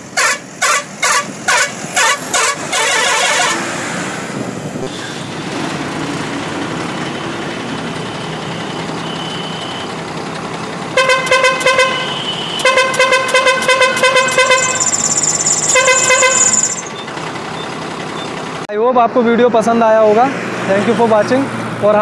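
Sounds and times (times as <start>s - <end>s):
truck horn playing pulsing notes: 0.0s - 3.9s, 10.9s - 16.9s
truck engine idling: 4.3s - 18.7s.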